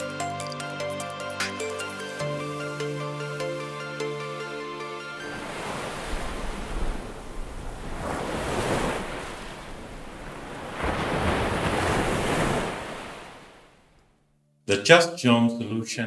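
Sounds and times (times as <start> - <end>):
sea waves washing: 2.1 - 14.0.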